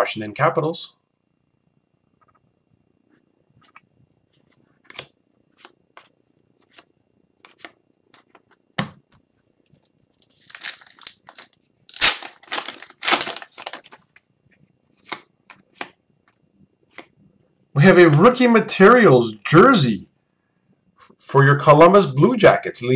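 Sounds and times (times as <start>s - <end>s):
wrapper torn open with crinkling: 10.2s - 14.1s.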